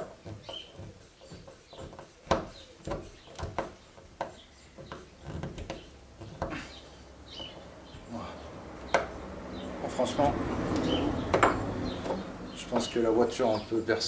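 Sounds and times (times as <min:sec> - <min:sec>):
screw being driven by hand: 0:00.0 - 0:06.6.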